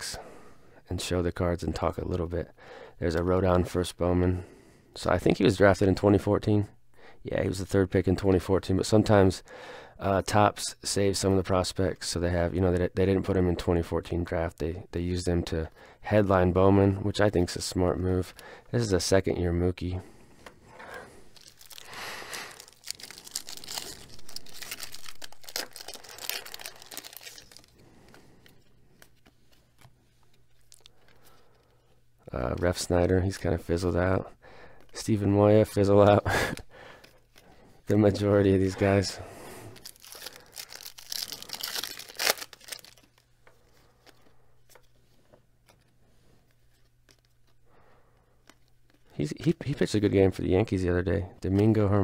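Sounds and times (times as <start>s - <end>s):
cards rustling and clicking: 20.4s - 34.0s, 34.6s - 50.2s
foil wrapper tearing and crinkling: 21.3s - 28.1s, 39.7s - 43.3s.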